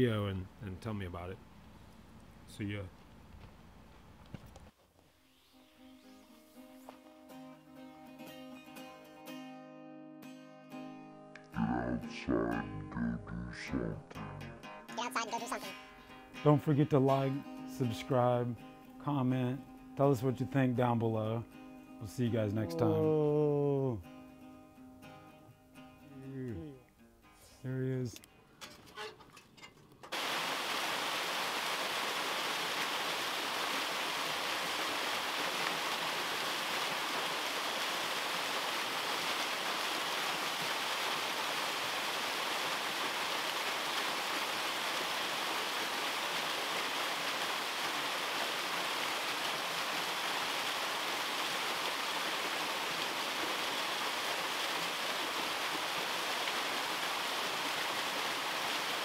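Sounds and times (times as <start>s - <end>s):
waterfall splashing into pool: 30.1s - 59.0s.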